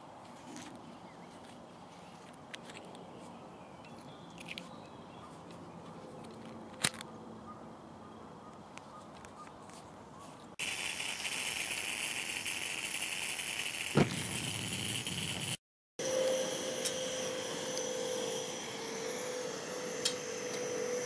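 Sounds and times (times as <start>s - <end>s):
stove burner hissing: 10.6s - 21.0s.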